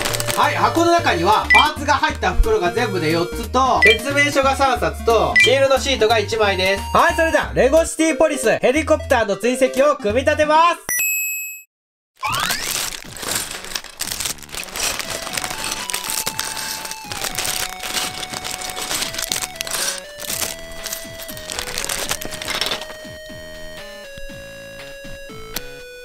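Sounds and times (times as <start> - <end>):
plastic parts shifting: 0.0 - 0.5, 12.2 - 23.1
plastic bags crinkling: 0.0 - 0.8, 12.2 - 23.1
simple background music: 0.0 - 10.7, 13.5 - 26.0.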